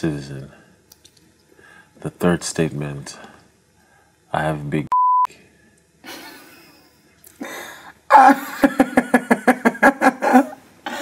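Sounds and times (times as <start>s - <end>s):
censor bleep: 4.9s - 5.3s
woman laughing loudly: 8.1s - 11.0s.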